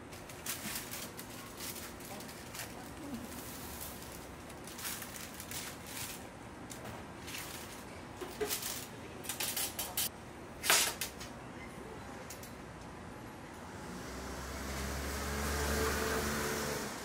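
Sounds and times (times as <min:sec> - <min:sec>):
baking paper rustling and crinkling: 0:00.0 - 0:10.1.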